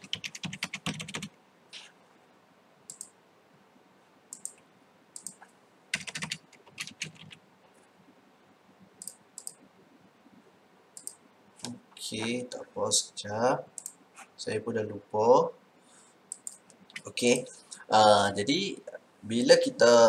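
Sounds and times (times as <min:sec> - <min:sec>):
computer keyboard keystrokes: 0:00.0 - 0:01.3, 0:02.9 - 0:03.1, 0:05.2 - 0:07.4, 0:16.3 - 0:17.1.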